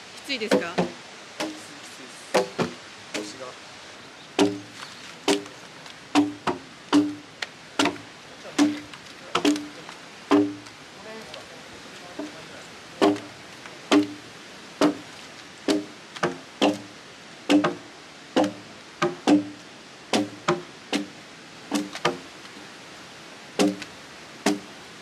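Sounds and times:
blade chopping into log: 4.4 - 5.5, 6.1 - 7.2, 7.8 - 8.0, 8.6 - 10.6, 13.0 - 13.3, 13.9 - 14.2, 14.8 - 15.0, 15.7 - 16.9, 17.5 - 17.8, 18.4 - 21.1, 21.7 - 22.2, 23.6 - 24.7.

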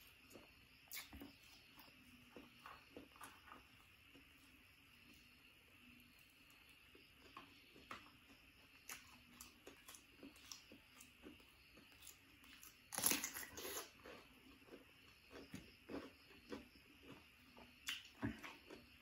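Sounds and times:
chewing: 7.2 - 19.0
crunchy bite into cucumber: 12.0 - 14.3.

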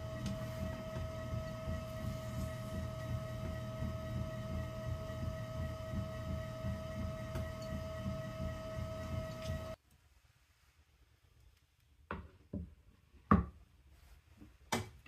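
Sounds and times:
potter's wheel motor whine: 0.0 - 9.8.

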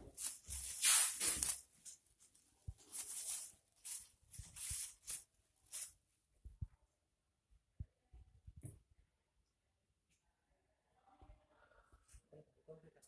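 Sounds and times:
plastic sheeting crinkling: 0.0 - 6.1.

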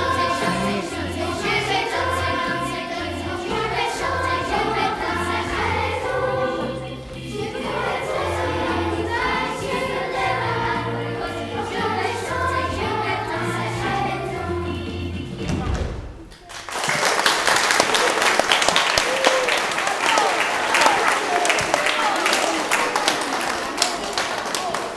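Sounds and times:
children's choir singing: 0.0 - 15.9.

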